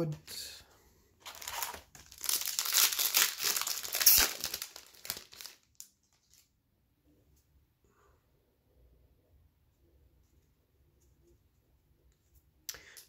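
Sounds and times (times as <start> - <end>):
plastic wrapper tearing and crinkling: 1.2 - 6.5.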